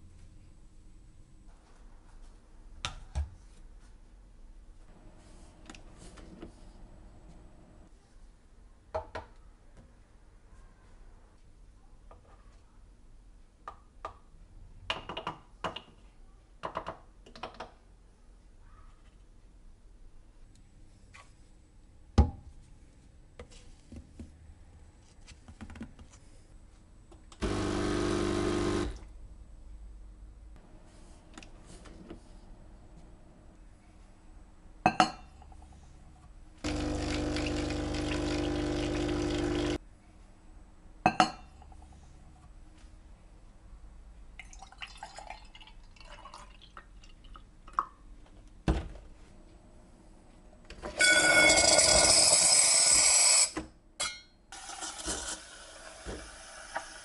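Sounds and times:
espresso machine pump humming: 27.4 - 29.0, 36.7 - 39.8.

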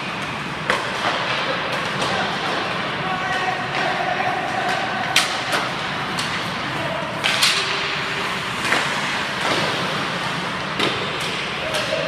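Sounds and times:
pucks cracking on sticks: 0.0 - 12.0
rink background noise: 0.0 - 12.0
skate blades scraping ice: 5.1 - 12.0.

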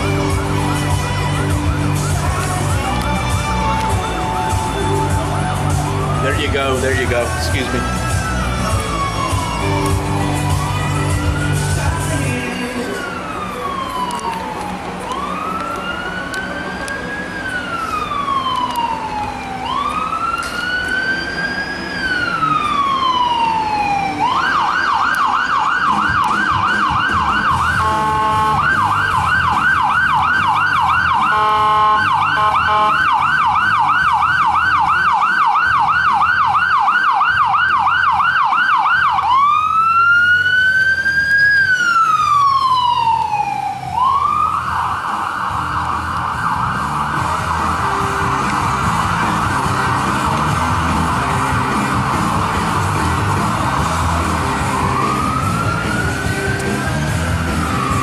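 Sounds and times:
emergency vehicle siren: 0.0 - 58.0
steady horn tone: 27.5 - 29.1, 31.1 - 33.2.

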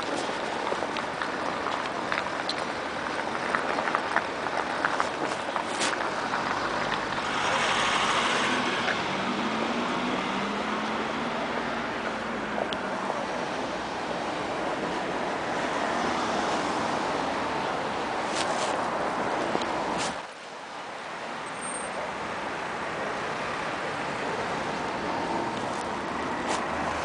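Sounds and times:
cars driving past: 0.0 - 27.0.

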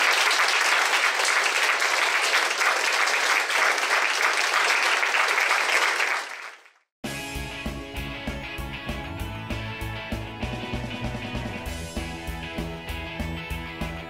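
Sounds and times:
audience applauding: 0.0 - 6.8
music with a beat: 7.0 - 14.0.

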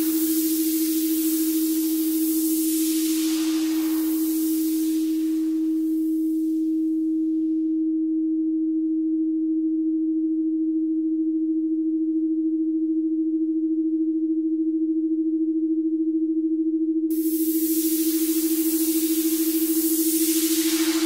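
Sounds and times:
faint hiss: 0.0 - 7.1, 17.1 - 21.0
low electronic pure tone: 0.0 - 21.0.

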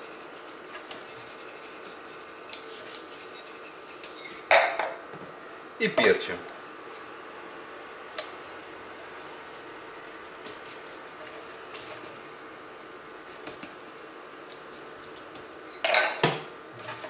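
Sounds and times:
steady low hum: 0.0 - 17.0
pepper shaker taps and rustles: 13.3 - 15.5.

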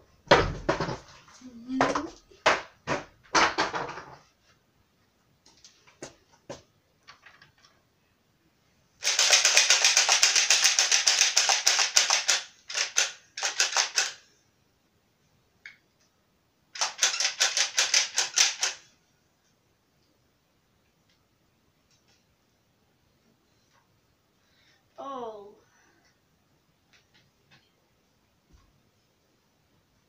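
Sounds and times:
toy dart blaster firing bursts: 9.0 - 14.2, 16.8 - 18.8.

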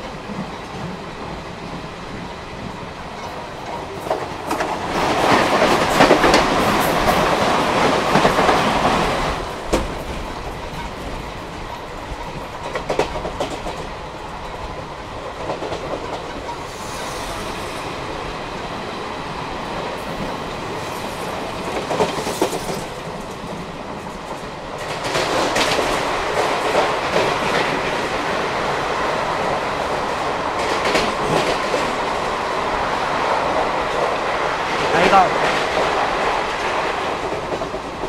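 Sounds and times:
train wheels clickety-clack on track: 0.0 - 38.0.

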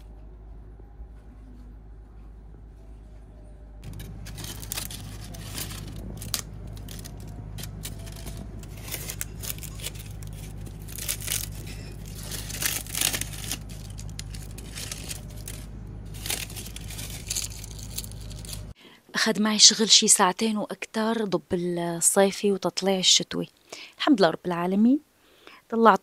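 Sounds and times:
steady low hum: 0.0 - 18.8
dry leaves crackling: 3.8 - 18.8.

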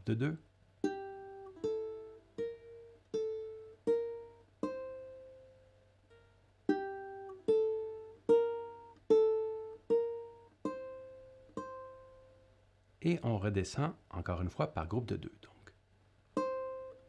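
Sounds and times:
ukulele plucked notes: 0.8 - 12.5, 16.3 - 17.0.

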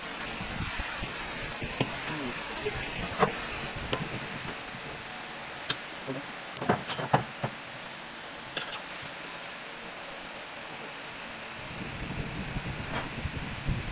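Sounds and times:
steady background hiss: 0.0 - 13.9
tools and metal parts knocking: 6.6 - 7.3.

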